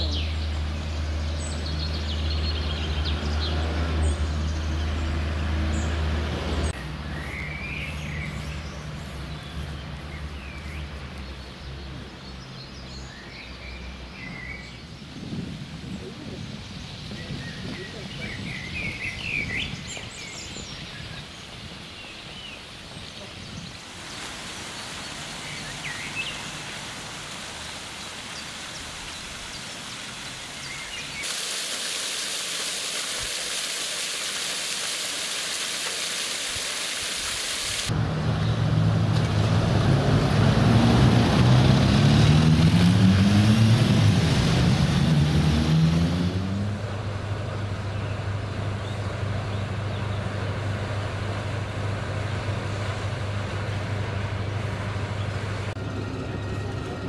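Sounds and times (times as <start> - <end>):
birds chirping: 0.0 - 38.6
fountain water splashing: 15.7 - 38.0
engine running: 37.2 - 57.0.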